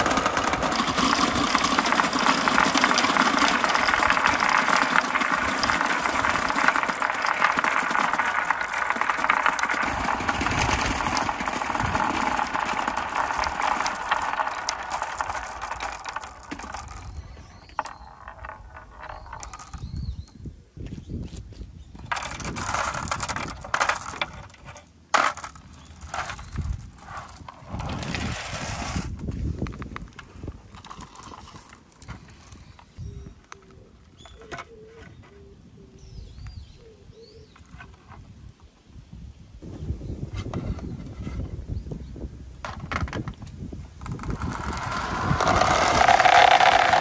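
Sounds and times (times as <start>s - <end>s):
marbles clicking together: 0.0s - 20.2s, 22.0s - 28.2s, 44.0s - 47.0s
marbles rolling down wooden chute: 0.0s - 20.4s, 22.0s - 30.1s, 30.7s - 32.8s, 42.6s - 47.0s.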